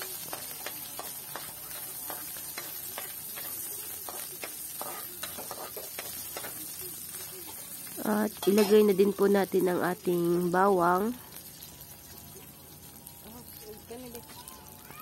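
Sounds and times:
spatula scraping and tapping pan: 0:00.0 - 0:06.7, 0:08.3 - 0:08.9
onions sizzling in hot oil: 0:00.0 - 0:15.0.

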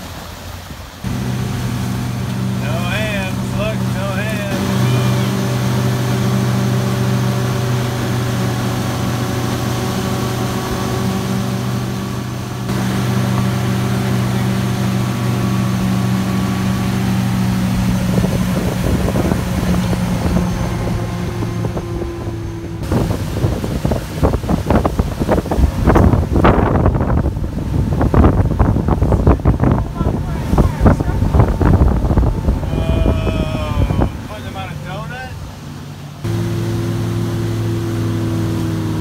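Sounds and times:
boat motor humming: 0:00.0 - 0:39.0
rushing water: 0:00.0 - 0:39.0
wind buffeting microphone: 0:06.2 - 0:34.6.

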